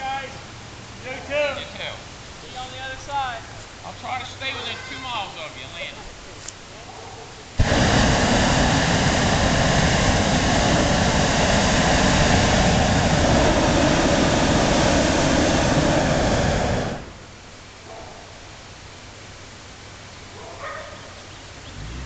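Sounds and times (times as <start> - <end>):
propane burner blast: 7.6 - 17.5.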